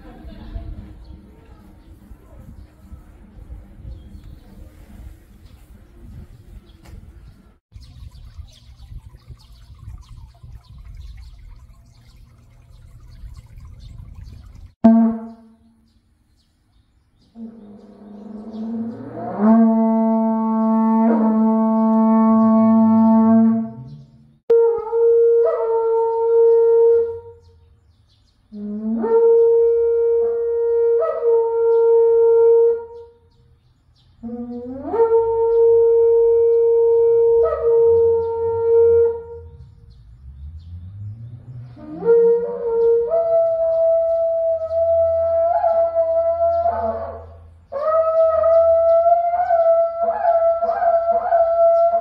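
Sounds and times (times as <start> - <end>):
horn-like wind instrument notes: 14.8 - 15.6, 17.4 - 27.4.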